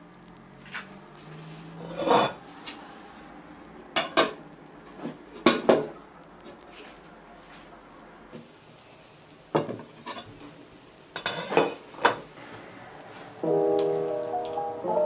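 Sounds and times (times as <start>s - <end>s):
plate scraping on bowl: 1.8s - 2.4s, 11.2s - 12.2s.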